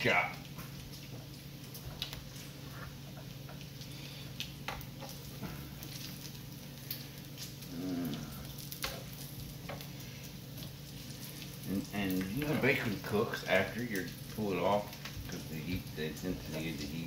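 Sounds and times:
bacon sizzling on a griddle: 0:00.0 - 0:17.0
low vocal hum: 0:07.6 - 0:08.7.

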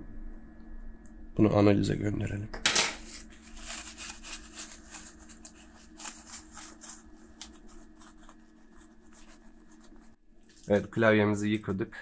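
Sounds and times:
faint steady hum: 0:00.0 - 0:12.0
wipe rubbing plastic: 0:03.0 - 0:10.8.

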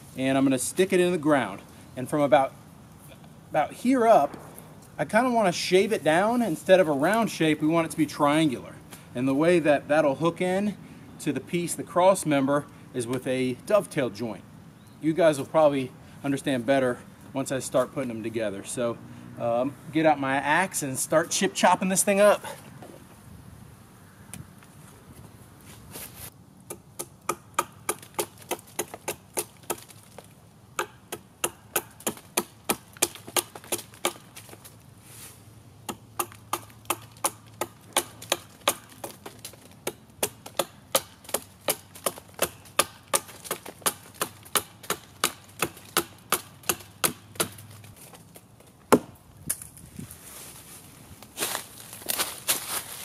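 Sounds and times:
hatchet chopping wood: 0:26.7 - 0:30.2, 0:30.8 - 0:34.7, 0:35.8 - 0:47.8, 0:48.9 - 0:49.2.

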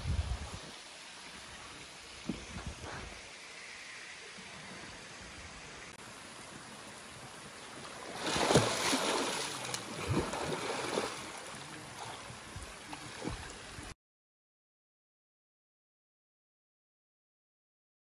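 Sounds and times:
steady hiss: 0:00.0 - 0:13.9
splashing while swimming: 0:08.0 - 0:12.2
loud splash into water: 0:08.2 - 0:11.3.

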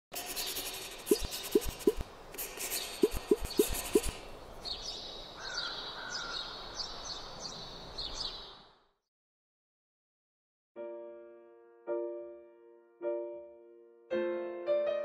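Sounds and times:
pen scratching on paper: 0:00.1 - 0:04.2
birds chirping: 0:00.2 - 0:02.0, 0:02.6 - 0:08.8
short popping notes: 0:03.0 - 0:04.2.

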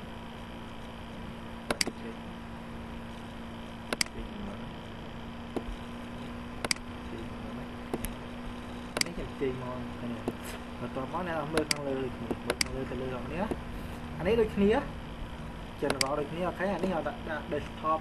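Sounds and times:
faint electrical hum: 0:00.0 - 0:18.0
computer mouse clicks: 0:01.6 - 0:02.1, 0:03.9 - 0:04.2, 0:05.5 - 0:07.0, 0:07.8 - 0:08.2, 0:08.9 - 0:09.2, 0:11.5 - 0:12.8, 0:15.8 - 0:16.2.

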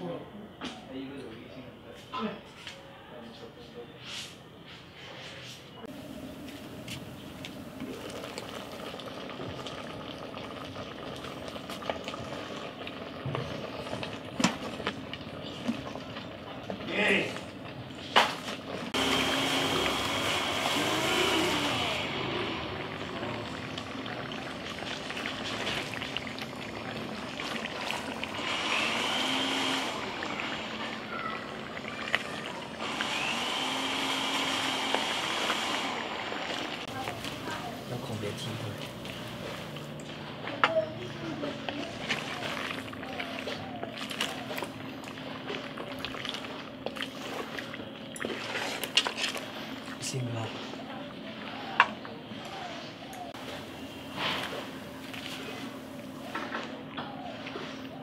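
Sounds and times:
high steady whine: 0:18.9 - 0:24.5
meat sizzling in a pot: 0:19.0 - 0:39.9
wooden spatula stirring meat: 0:36.5 - 0:52.9.

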